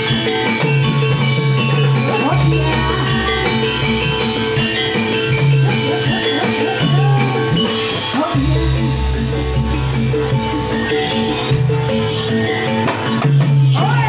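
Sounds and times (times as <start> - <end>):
gamelan ringing pitched notes: 0.0 - 14.0
deep sustained note: 8.4 - 11.6.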